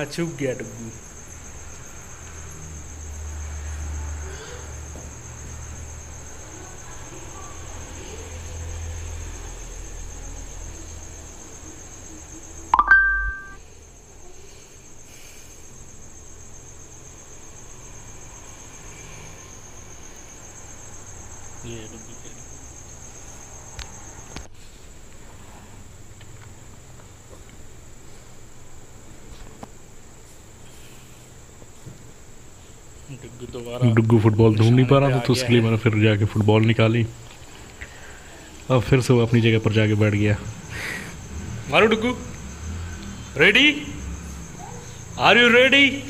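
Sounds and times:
high-pitched insect-like chirring: 0.0s - 24.5s, 32.8s - 46.0s
short loud two-tone sound: 12.8s - 13.6s.

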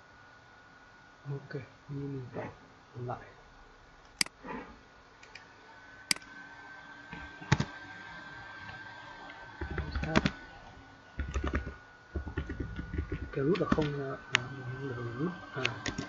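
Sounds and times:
typing on computer keyboard: 11.2s - 13.9s.

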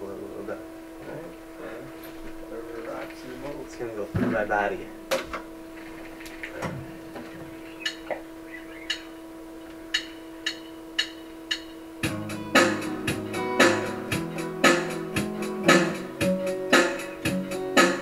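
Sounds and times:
low guitar tone: 12.0s - 17.8s
guitar strummed chords: 12.0s - 18.0s.

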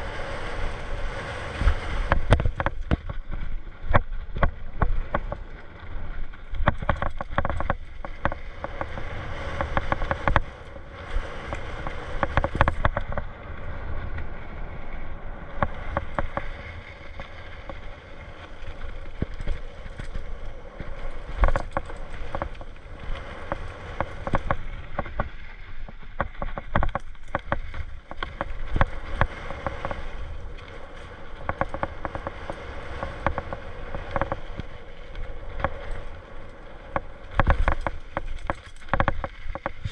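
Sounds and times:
bike tyres rolling on dirt: 0.0s - 39.9s
wind rumble on microphone: 0.0s - 39.9s
bike rattling and knocking: 1.6s - 14.4s, 15.5s - 39.9s.

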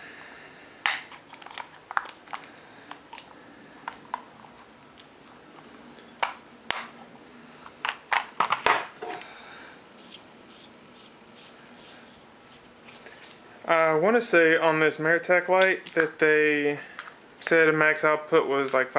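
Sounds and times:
hands handling plastic pack: 0.8s - 5.1s.

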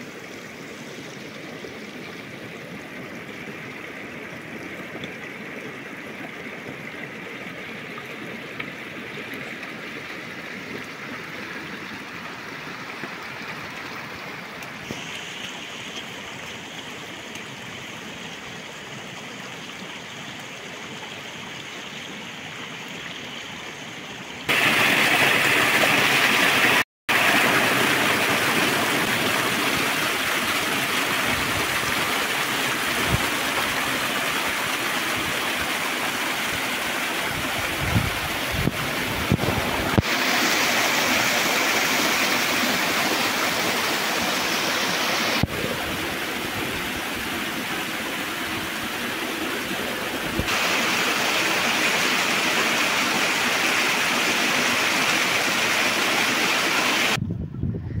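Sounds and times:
river water rushing: 24.4s - 57.2s.

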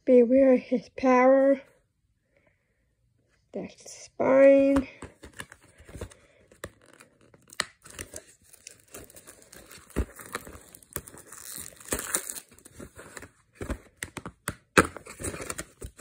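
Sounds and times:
plastic wrap crinkling: 6.7s - 13.3s.

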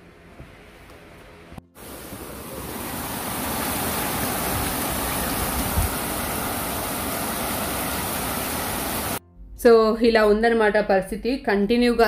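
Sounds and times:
heavy rain pouring: 1.7s - 9.2s.

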